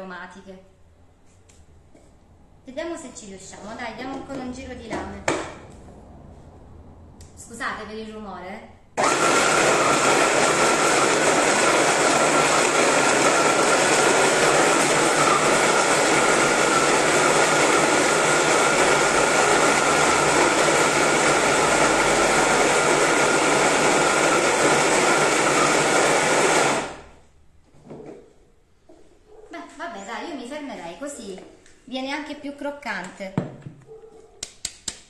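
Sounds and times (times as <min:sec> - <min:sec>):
hand blender chopping: 0:09.0 - 0:27.0.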